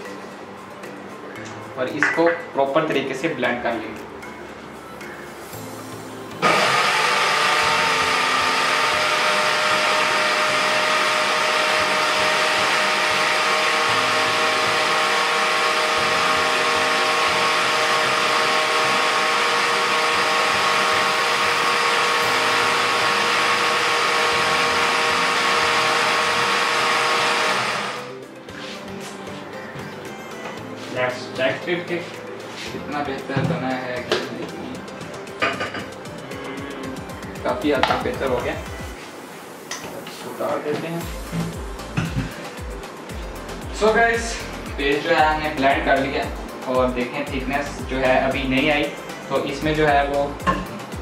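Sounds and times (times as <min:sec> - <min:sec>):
electric blender running: 0:06.4 - 0:28.2.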